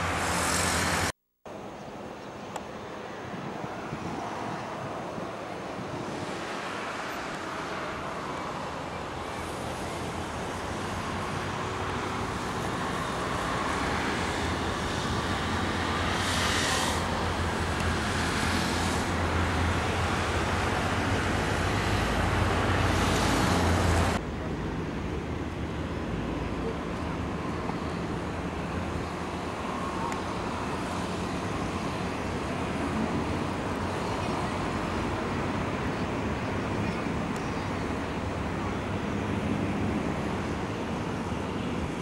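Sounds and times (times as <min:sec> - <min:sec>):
road traffic passing: 0:00.0 - 0:42.0.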